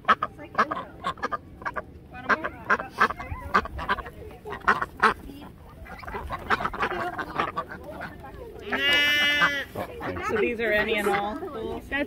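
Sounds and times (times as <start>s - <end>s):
ducks quacking: 0.0s - 12.0s.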